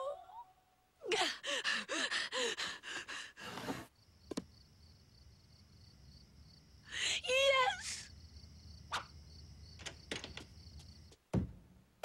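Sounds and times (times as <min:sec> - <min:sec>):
crickets chirring: 0:02.3 - 0:11.2.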